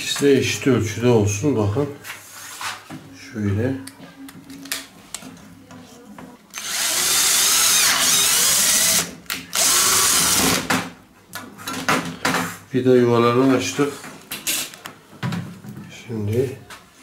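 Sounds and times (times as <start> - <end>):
cordless drill boring: 6.5 - 10.7.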